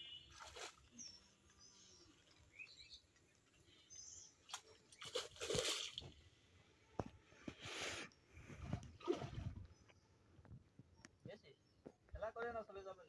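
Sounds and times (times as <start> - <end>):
splash on pond surface: 0.2 - 1.0, 4.4 - 6.2.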